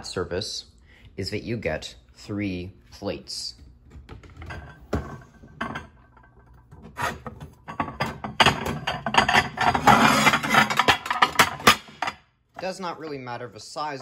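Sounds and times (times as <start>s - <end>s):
plates clattering and scraping: 4.2s - 12.2s.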